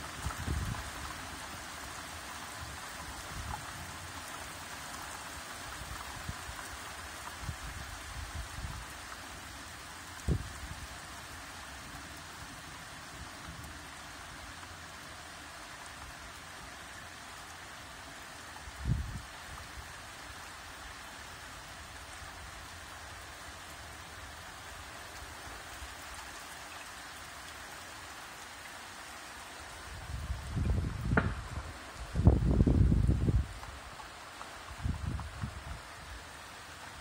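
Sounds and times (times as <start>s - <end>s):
steady rain falling: 0.0s - 37.0s
low thump: 31.1s - 31.6s.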